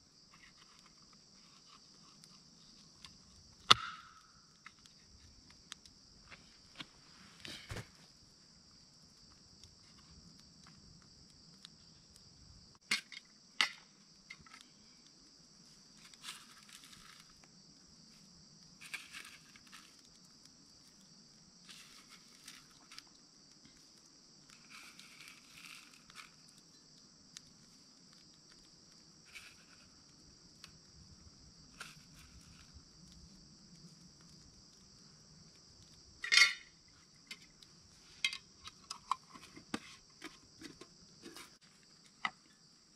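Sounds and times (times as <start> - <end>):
insects chorus: 0.0 - 42.9.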